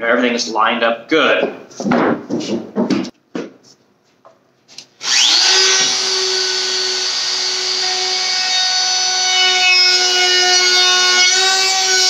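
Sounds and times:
router motor whine: 5.0 - 12.0.

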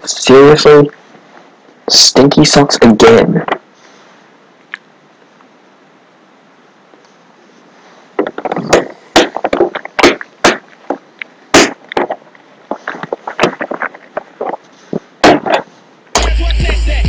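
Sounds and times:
sharp gunshot-like bangs: 11.6 - 11.8.

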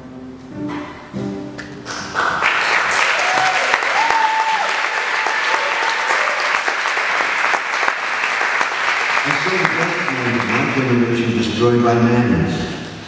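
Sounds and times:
audience applauding: 1.8 - 11.5.

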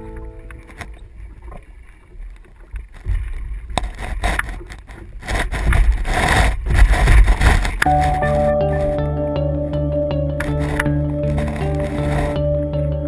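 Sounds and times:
water sloshing against hull: 0.0 - 8.2.

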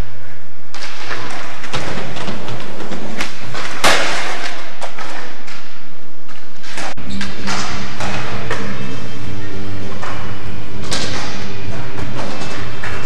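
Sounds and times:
skateboard crash: 0.7 - 5.6.

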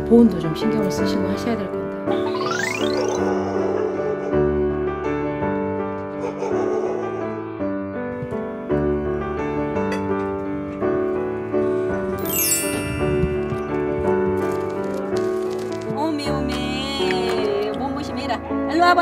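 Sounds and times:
slow piano chords: 0.0 - 19.0
bright rising sweep: 12.2 - 13.9.

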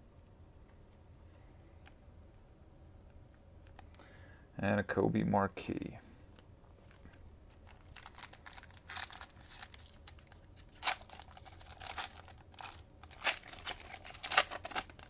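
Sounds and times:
foil wrapper crinkling and tearing: 7.0 - 15.0.

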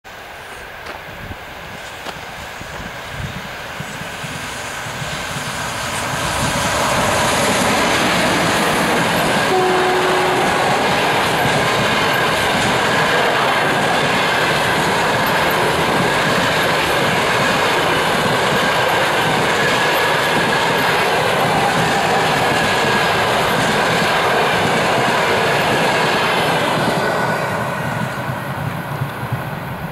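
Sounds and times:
electric locomotive passing: 0.1 - 29.9
train wheels over rails: 0.2 - 29.9.

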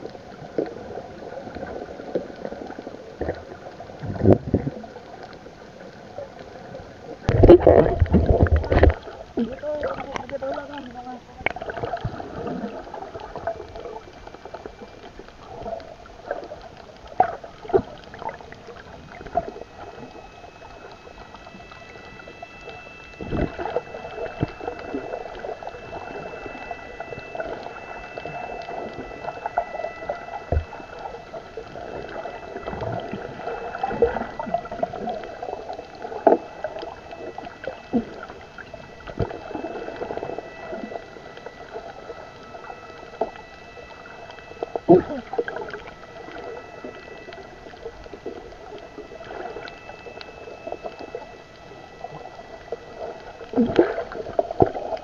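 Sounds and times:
faint steady high tones: 0.0 - 55.0
muffled watery wash: 0.0 - 55.0
sharp underwater clicks and knocks: 7.2 - 12.2.

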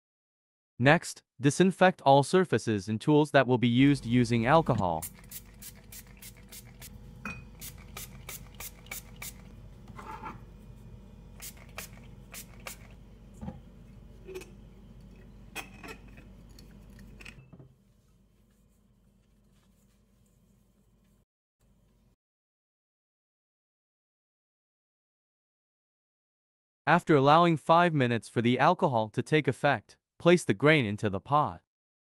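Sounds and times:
cloth wiping: 17.8 - 21.2.

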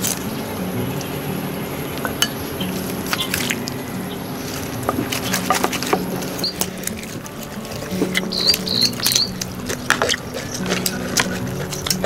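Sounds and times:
kitchen utensils clinking on dishes: 2.0 - 3.6.

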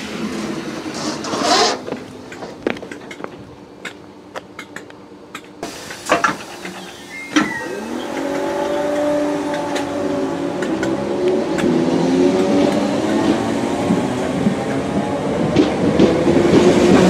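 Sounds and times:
train doors clunking shut: 5.6 - 10.0
electric train motor whine: 6.6 - 10.5.

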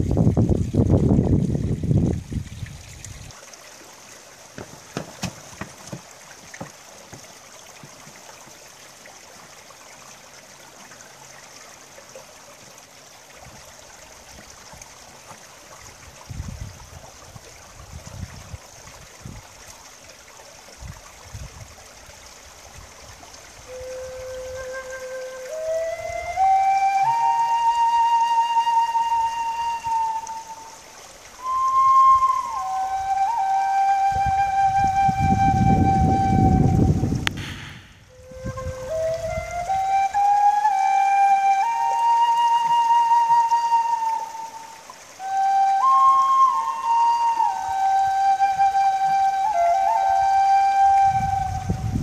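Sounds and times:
stream trickling and splashing: 0.0 - 52.0
taps and low thumps: 4.5 - 8.2
flute held note: 31.4 - 52.0.

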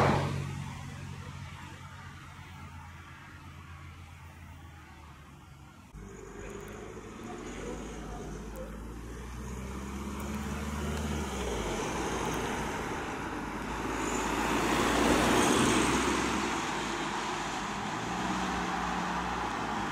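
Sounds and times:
vehicle passing close by: 0.0 - 1.0, 6.0 - 19.9
low engine hum: 0.0 - 19.9.

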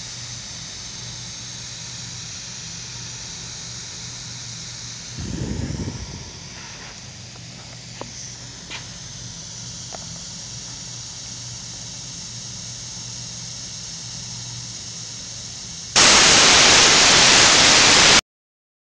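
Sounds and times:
loud rushing hiss: 5.1 - 9.0, 15.9 - 18.2.

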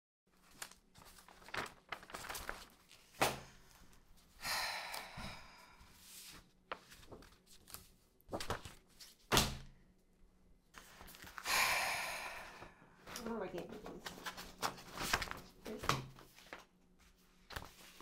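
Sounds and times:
paper rustling: 0.3 - 4.3, 5.8 - 9.6, 10.7 - 11.4, 13.1 - 18.0.

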